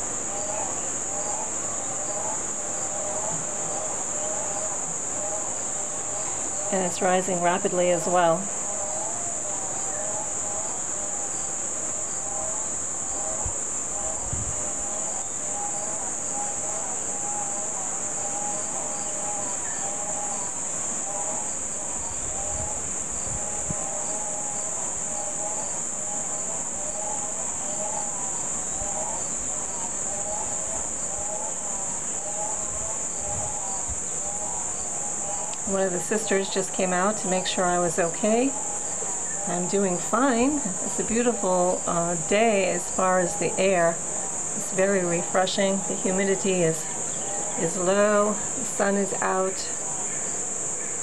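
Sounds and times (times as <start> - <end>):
insects chirring: 0.0 - 51.0.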